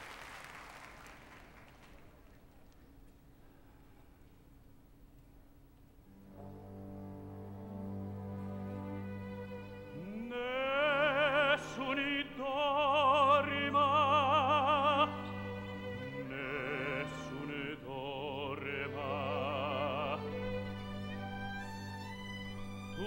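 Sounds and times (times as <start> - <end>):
orchestral accompaniment: 6.1 - 23.0
operatic tenor singing: 6.4 - 23.0.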